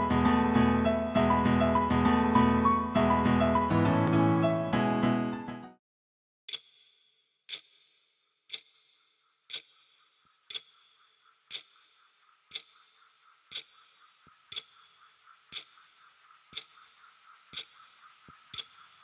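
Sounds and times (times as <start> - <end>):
clock ticking: 6.5 - 19.0.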